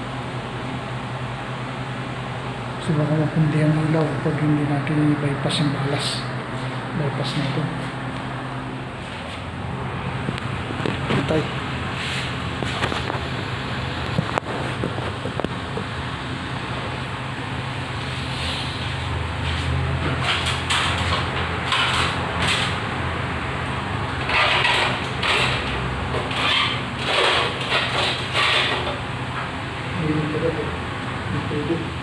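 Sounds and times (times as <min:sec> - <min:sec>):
steady low hum: 0:00.0 - 0:32.0
fluorescent tube scraping: 0:24.2 - 0:29.0.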